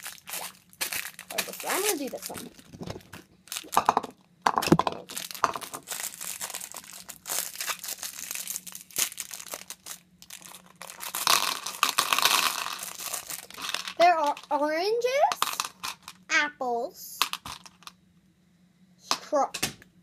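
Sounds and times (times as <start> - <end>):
plastic candy wrapper crinkling: 0.0 - 14.6.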